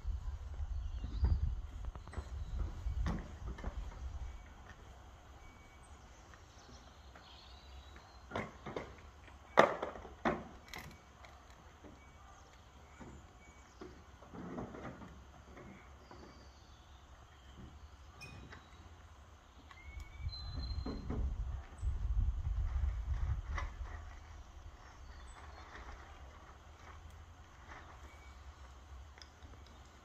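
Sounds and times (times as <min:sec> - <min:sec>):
steady low rumble: 0:00.0 - 0:06.6.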